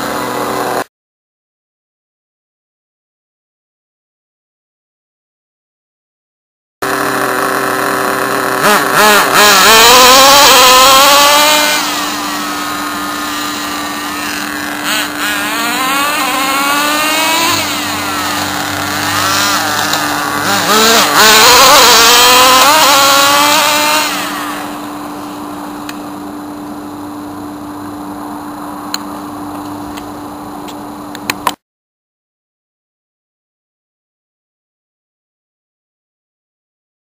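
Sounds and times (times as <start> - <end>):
rc car engine revving: 0.0 - 0.9, 6.8 - 26.9.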